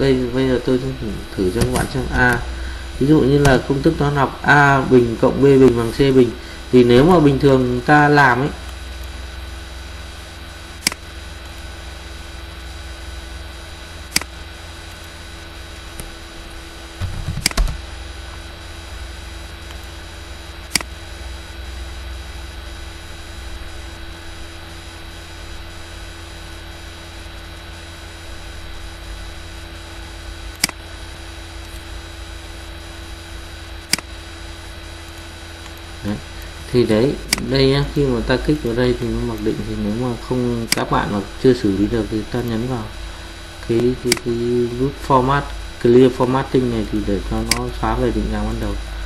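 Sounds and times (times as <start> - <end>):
electrical hum and hiss: 0.0 - 49.0
computer mouse clicking: 14.1 - 14.3, 17.0 - 17.8, 20.7 - 20.9, 30.6 - 30.8, 33.9 - 34.1, 44.1 - 44.3
short low thump: 17.0 - 17.8.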